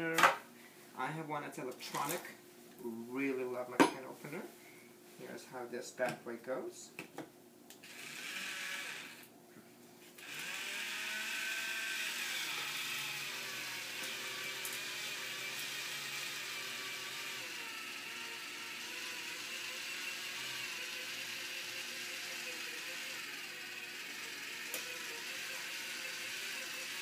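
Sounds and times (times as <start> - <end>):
electric can opener motor: 7.8 - 9.3, 10.1 - 27.0.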